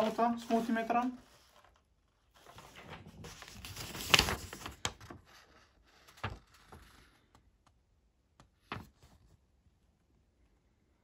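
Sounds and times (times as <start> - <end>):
paper rustling: 0.0 - 7.3, 8.5 - 9.5.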